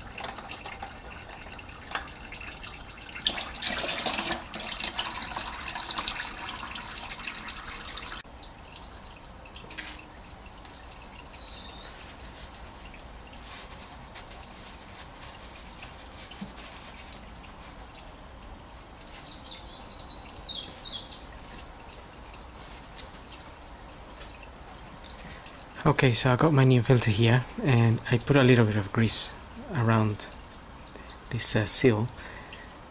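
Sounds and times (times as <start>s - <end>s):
oil pouring into drain pan: 0.0s - 19.1s
oil dripping: 0.0s - 32.9s.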